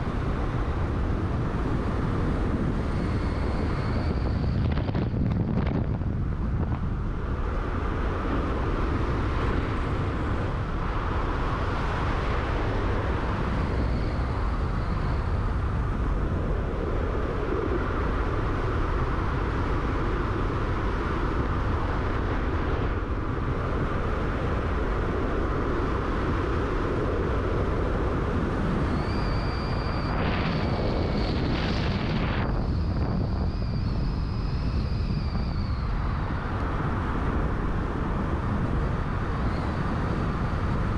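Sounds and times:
car road and engine noise: 0.0 - 40.9
thin high-pitched whine: 28.5 - 36.9.

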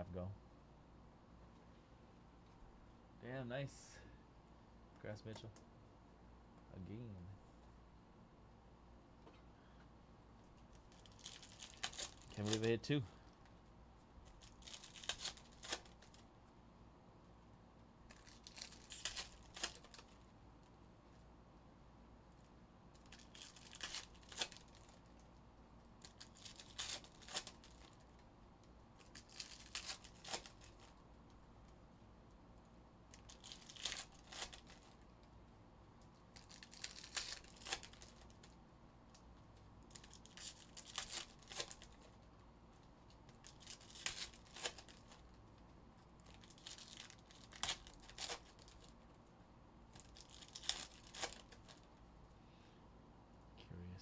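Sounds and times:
foil packs tearing: 11.0 - 12.7, 14.4 - 16.1, 18.1 - 20.0, 23.1 - 24.9, 26.1 - 28.0, 29.1 - 30.8, 36.4 - 38.3, 40.0 - 42.0, 43.4 - 45.1, 46.3 - 48.8, 50.1 - 51.8.

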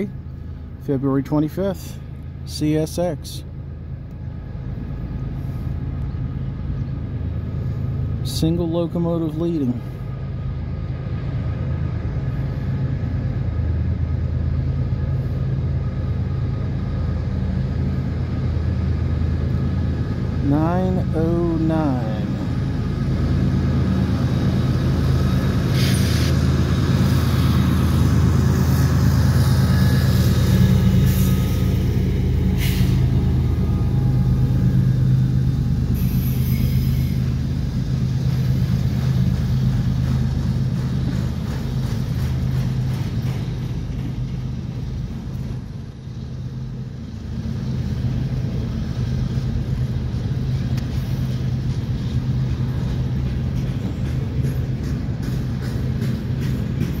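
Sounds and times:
diesel locomotive engine drone: 0.0 - 57.0
wheels rumbling on rails: 0.0 - 57.0.

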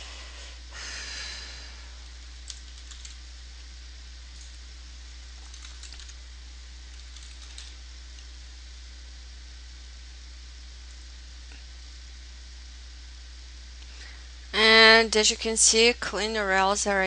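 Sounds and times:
steady hiss: 0.0 - 16.7
low electrical hum: 0.0 - 17.0
faint keyboard typing: 2.0 - 3.4, 5.2 - 6.2, 6.8 - 8.3.

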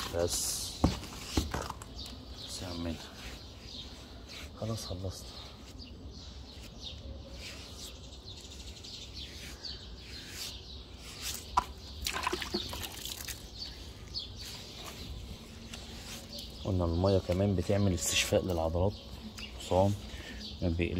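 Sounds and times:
small birds chirping: 0.0 - 20.9
water splashes: 12.0 - 13.4
water dripping and trickling: 12.0 - 13.5.

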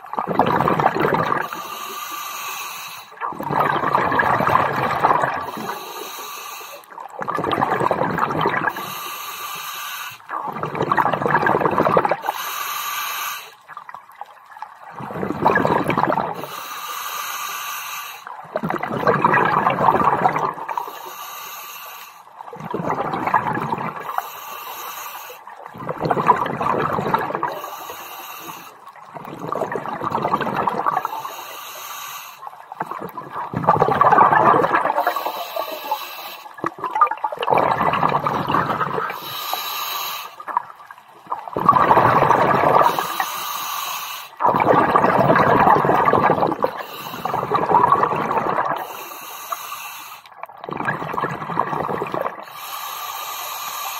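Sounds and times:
exhaled air bubbling underwater: 0.0 - 53.9
regulator hiss: 42.9 - 44.4.

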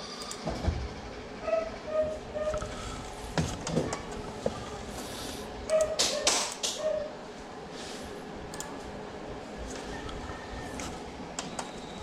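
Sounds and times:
room noise: 0.0 - 12.0
keyboard and mouse clicks: 5.7 - 6.9, 8.5 - 8.8, 10.8 - 11.8.

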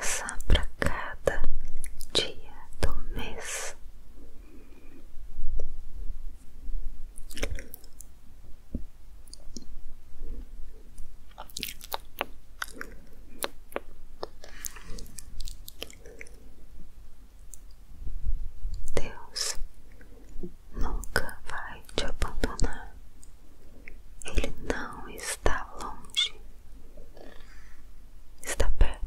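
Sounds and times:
faint low rumble: 0.0 - 29.0
soft wet clicks and crackles: 0.2 - 3.0, 7.2 - 9.8, 10.9 - 16.4, 17.4 - 17.8, 18.6 - 26.4.

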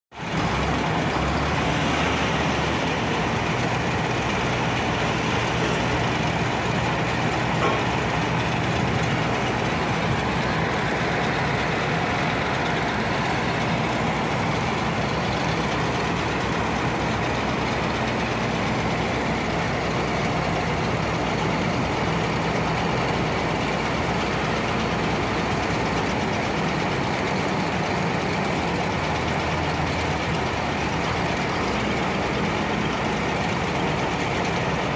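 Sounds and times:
diesel truck engine running: 0.2 - 34.9
belt conveyor running: 2.8 - 17.3.

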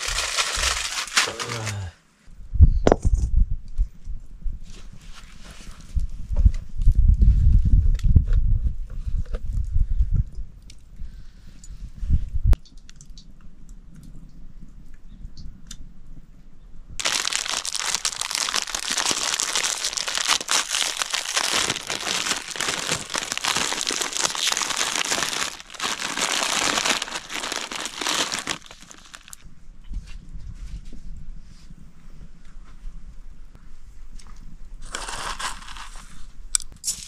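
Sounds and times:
packet crinkling and crunching: 0.0 - 1.9, 17.0 - 29.4, 34.8 - 36.0.

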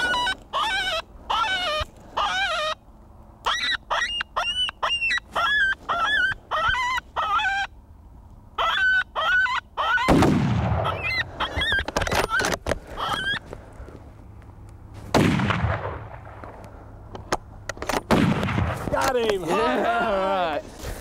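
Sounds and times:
coyote yelping and whining: 0.0 - 2.8, 3.4 - 7.8, 8.6 - 10.2, 10.8 - 13.4.

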